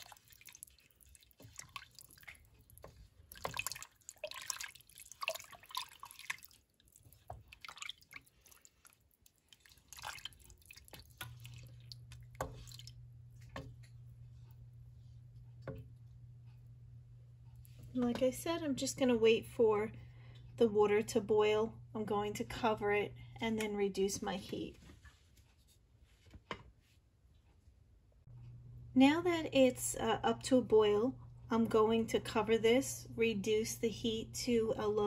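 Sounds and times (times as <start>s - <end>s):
liquid sloshing and dripping: 0.0s - 16.7s
wooden spoon stirring in pot: 0.0s - 16.7s
steady low hum: 10.0s - 24.9s, 27.9s - 35.0s.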